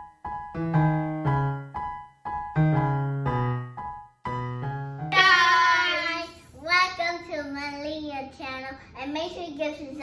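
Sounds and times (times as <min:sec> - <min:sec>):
piano tune with bass notes: 0:00.0 - 0:06.3.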